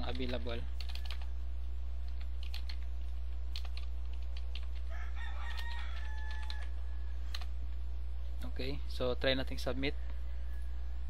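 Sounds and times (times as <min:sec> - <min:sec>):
low hum: 0:00.6 - 0:04.9, 0:06.4 - 0:11.0
keyboard keystrokes: 0:02.1 - 0:02.8, 0:03.5 - 0:04.9.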